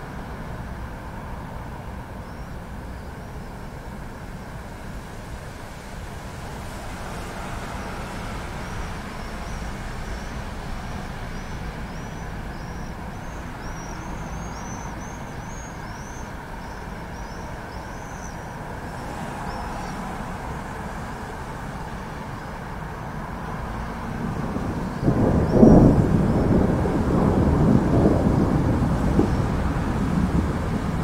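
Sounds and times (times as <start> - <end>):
loud peal of thunder: 24.2 - 31.0.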